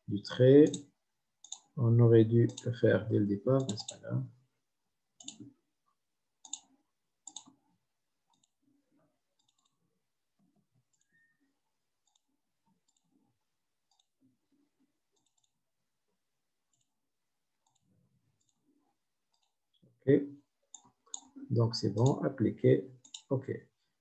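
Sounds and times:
computer mouse clicking: 0.6 - 1.8, 2.4 - 2.7, 3.6 - 4.0, 5.2 - 5.5, 6.4 - 7.6, 8.3 - 8.6, 9.3 - 9.8, 12.0 - 13.1, 13.9 - 14.2, 15.1 - 15.6, 20.7 - 21.4, 23.0 - 23.3.

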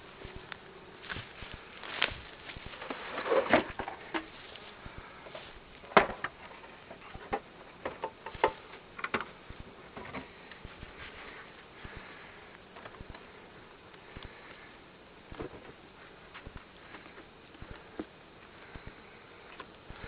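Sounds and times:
wooden boxes knocking and scraping: 2.7 - 4.4, 5.9 - 10.3.

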